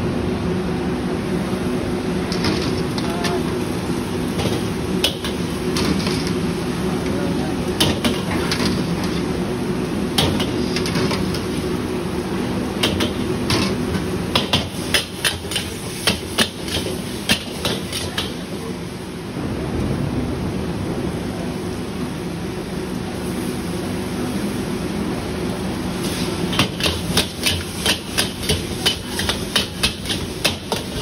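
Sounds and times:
steady low drone: 18.9s - 23.2s
metal utensils clanging against a wok: 26.8s - 31.0s.

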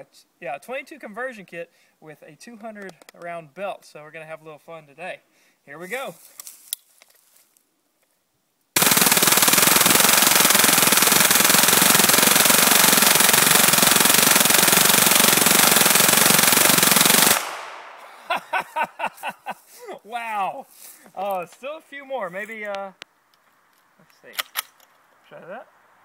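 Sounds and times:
rapid rifle fire burst: 8.8s - 18.3s.

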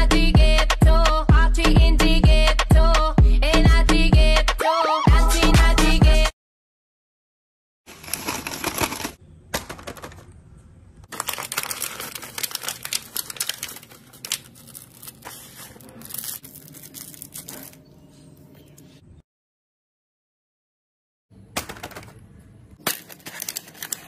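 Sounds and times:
paper and cardboard rustling: 7.9s - 10.3s, 11.1s - 17.8s, 22.8s - 24.0s.

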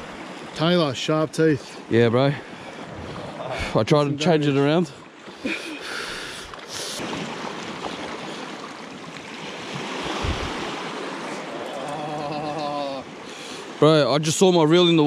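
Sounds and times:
waves washing against rocks: 6.8s - 15.0s.

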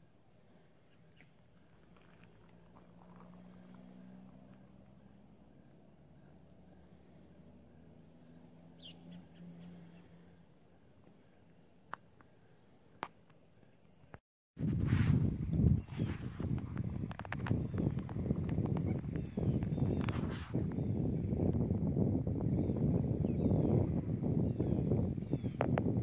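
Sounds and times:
insect drone: 0.0s - 14.2s
bird call: 8.2s - 10.3s.

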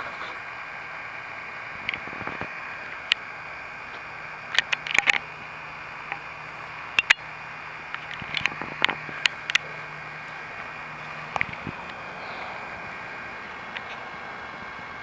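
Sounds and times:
camcorder zoom motor humming: 0.0s - 15.0s
recording hiss: 0.0s - 15.0s
sharp clicks: 4.4s - 5.3s, 6.9s - 9.7s.

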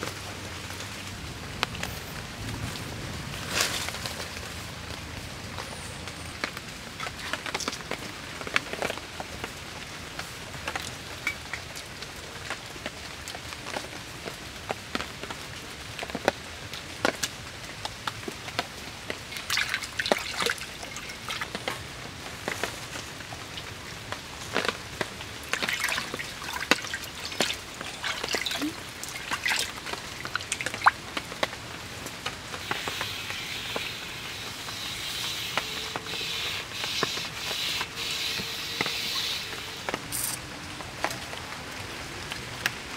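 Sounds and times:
background hiss: 17.8s - 40.5s
high hiss: 32.4s - 40.4s.

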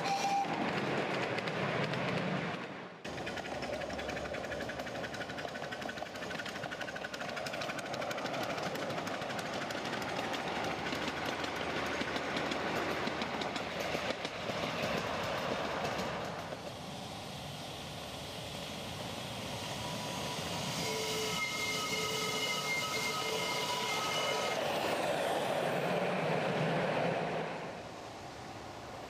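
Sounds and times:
miniature train clicking: 0.0s - 16.8s.

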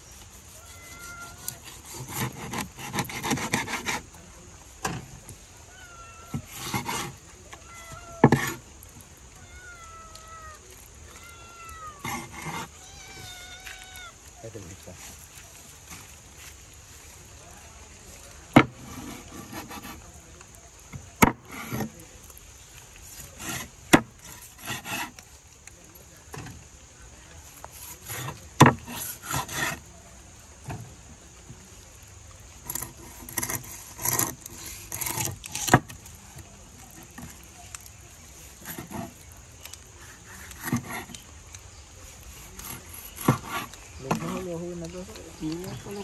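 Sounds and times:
knife sawing through fish: 0.0s - 4.2s, 6.4s - 7.2s, 12.0s - 12.8s, 18.8s - 20.1s, 23.1s - 25.2s, 27.6s - 29.8s, 32.6s - 36.0s, 38.4s - 39.2s, 40.0s - 41.2s, 42.1s - 44.5s
machete chopping on wooden board: 18.5s - 19.9s, 21.2s - 21.9s, 23.6s - 25.1s, 28.1s - 29.8s.

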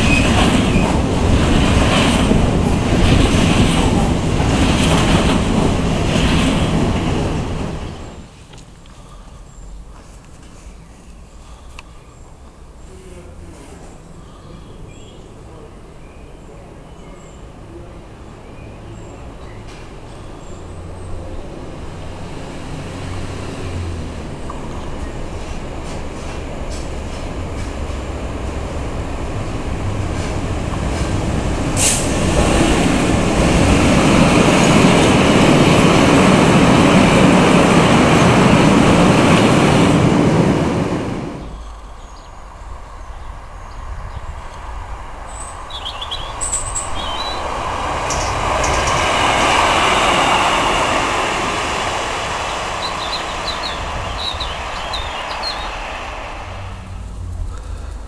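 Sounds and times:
freight train passing: 0.0s - 58.0s
passenger train running: 0.0s - 58.0s
birds chirping: 10.6s - 13.3s, 13.9s - 21.8s, 41.4s - 51.0s, 51.7s - 56.9s.

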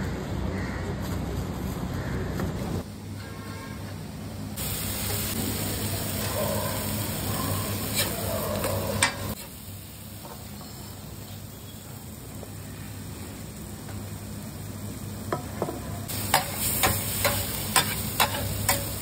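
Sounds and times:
food sizzling on griddle: 4.6s - 19.0s.

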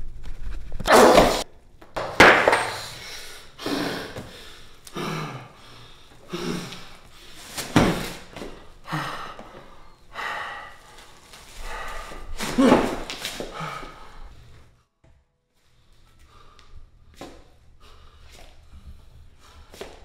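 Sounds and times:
man breathing heavily and grunting: 2.7s - 14.6s.

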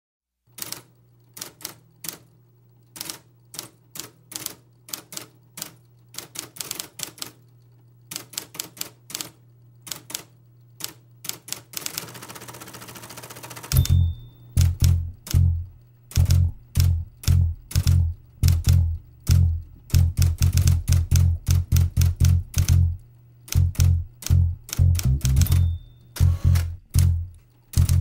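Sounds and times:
typewriter keys clacking: 0.6s - 2.3s, 2.9s - 7.5s, 8.1s - 15.5s, 16.1s - 28.0s
steady low hum: 13.7s - 28.0s
short high ring: 13.8s - 14.6s
band playing with bass and drums: 26.4s - 28.0s.

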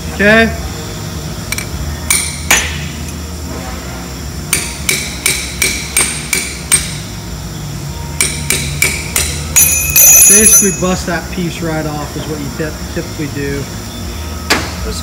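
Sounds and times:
hammer striking metal: 1.5s - 2.8s, 4.5s - 7.0s, 8.2s - 10.9s.

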